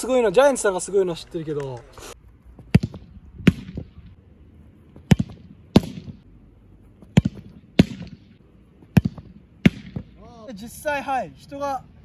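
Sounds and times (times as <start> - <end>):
football kicked hard: 2.6 - 3.9, 5.0 - 6.2, 7.0 - 8.2, 8.9 - 10.1.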